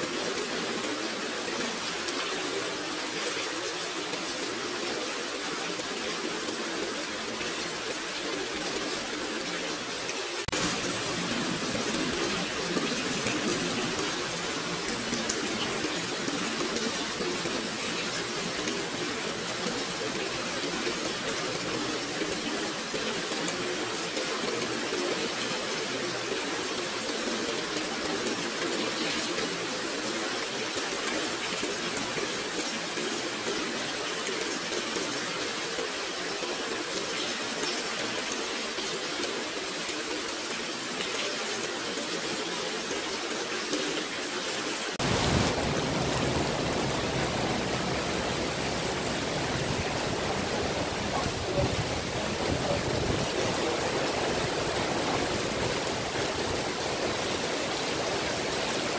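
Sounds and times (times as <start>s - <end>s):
heavy rain on paving: 0.0s - 58.9s.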